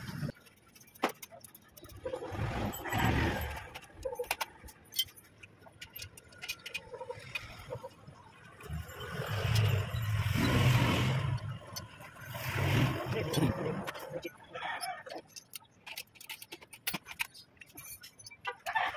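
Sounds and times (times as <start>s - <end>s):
metallic clinks and rattles: 0.0s - 12.3s, 13.2s - 18.9s.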